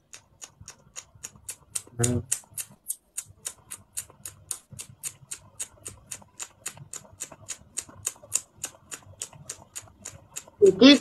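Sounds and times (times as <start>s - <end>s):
rapid ticking clicks: 0.0s - 11.0s.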